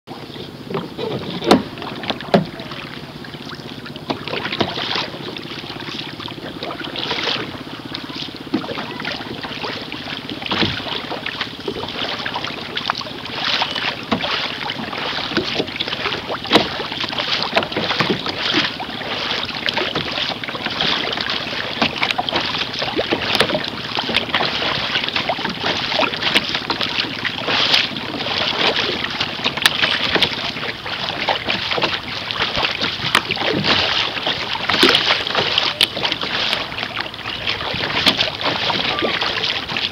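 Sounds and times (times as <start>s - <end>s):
water rushing along canoe hull: 0.1s - 39.9s
wind on microphone: 14.2s - 39.9s.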